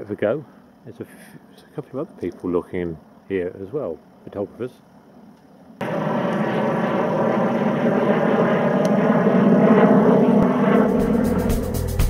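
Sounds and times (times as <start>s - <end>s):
jet aircraft engine roar: 5.8s - 12.0s.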